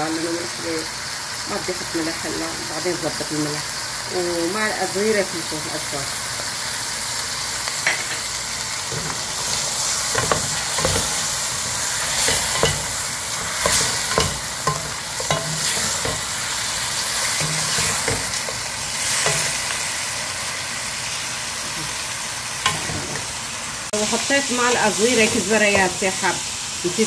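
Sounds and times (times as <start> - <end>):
meat and garlic sizzling in oil: 0.0 - 27.0
wooden spoon scraping a pot: 17.2 - 19.6.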